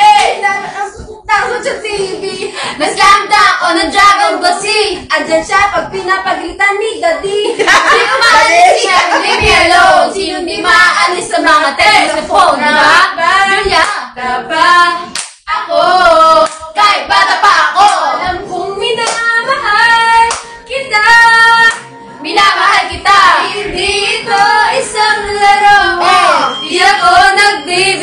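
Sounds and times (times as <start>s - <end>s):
women singing together: 0.0s - 28.0s
hand clapping: 15.1s - 15.4s, 16.4s - 16.7s, 19.0s - 19.3s, 20.3s - 20.5s.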